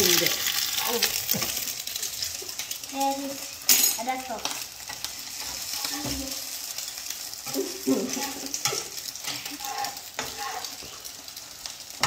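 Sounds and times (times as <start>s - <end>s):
eggs sizzling in oil: 0.0s - 12.0s
metal spatula scraping pan: 7.4s - 11.0s.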